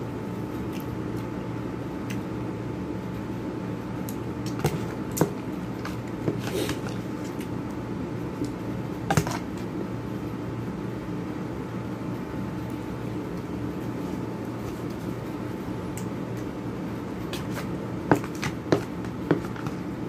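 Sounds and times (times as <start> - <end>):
steady background hum: 0.0 - 20.0.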